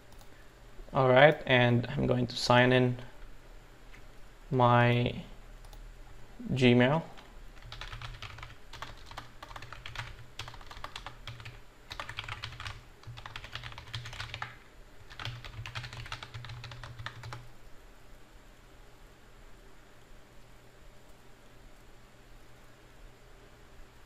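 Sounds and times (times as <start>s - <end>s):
keyboard typing: 0.0s - 0.3s, 7.2s - 17.5s.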